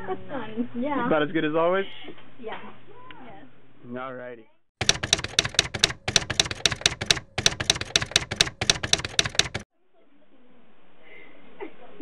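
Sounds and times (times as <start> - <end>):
typewriter key clacks: 4.8 - 9.7.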